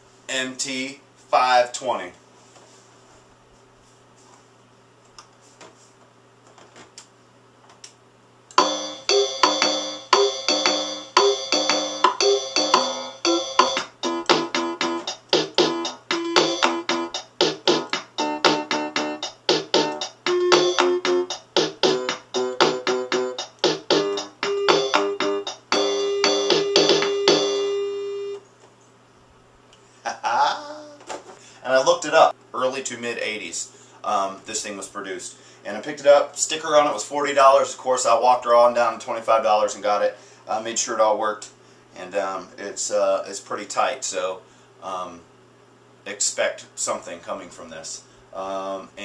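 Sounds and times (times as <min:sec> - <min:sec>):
electronic keyboard rhythm: 0:08.5 - 0:27.8.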